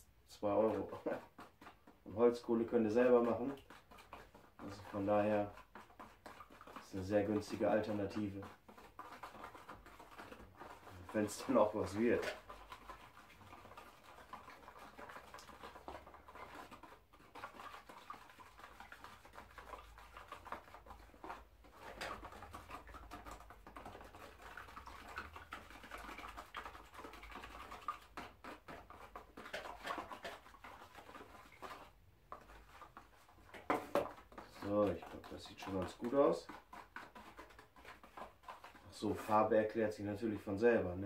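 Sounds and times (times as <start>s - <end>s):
stick scraping in metal tray: 9.5s - 13.0s.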